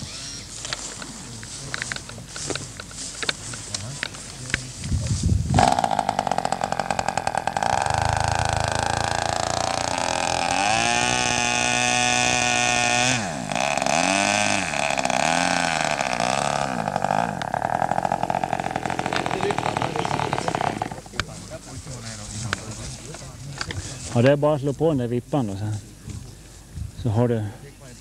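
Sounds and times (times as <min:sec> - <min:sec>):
model airplane engine revving: 0:05.5 - 0:21.1.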